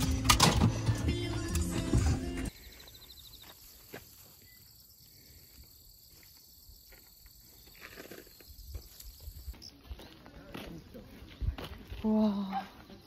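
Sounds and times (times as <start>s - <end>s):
insects trilling in grass: 2.6s - 9.8s.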